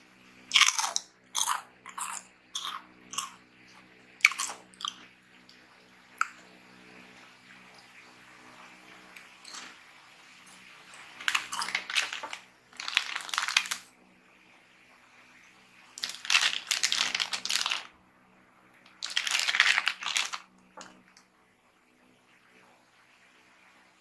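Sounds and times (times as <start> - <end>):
plastic chip bag crinkling: 11.2 - 13.9, 16.0 - 17.9, 18.9 - 20.5.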